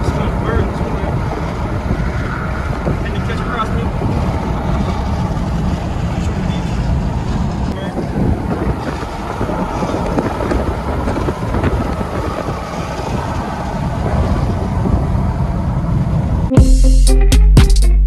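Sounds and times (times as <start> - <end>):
vehicle road and wind noise: 0.0 - 16.5
music: 16.5 - 18.0.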